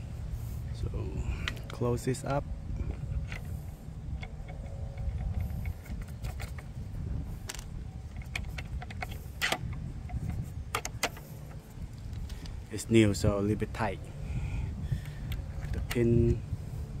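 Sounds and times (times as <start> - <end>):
steady low rumble: 0.0 - 17.0
metallic clicks and scrapes: 1.4 - 12.6, 15.0 - 16.4.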